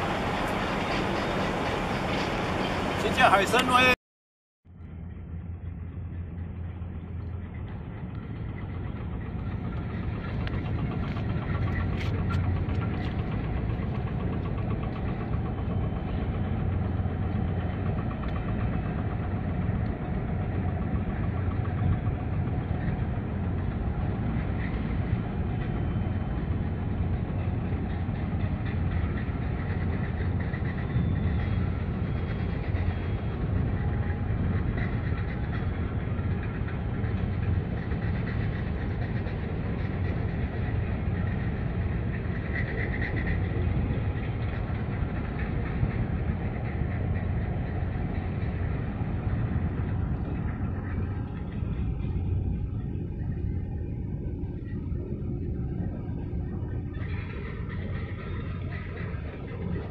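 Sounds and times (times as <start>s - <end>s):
low engine rumble: 0.0s - 4.0s, 4.7s - 59.9s.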